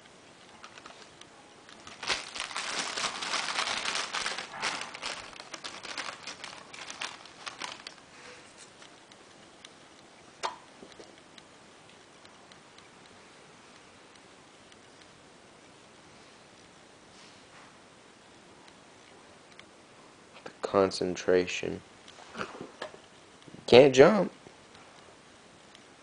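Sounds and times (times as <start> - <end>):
bag crinkling and rustling: 0.6 - 1.1, 1.7 - 8.9.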